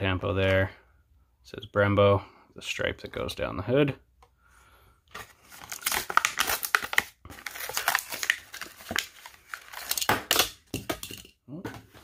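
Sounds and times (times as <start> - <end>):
plastic packaging crackling: 5.4 - 10.6.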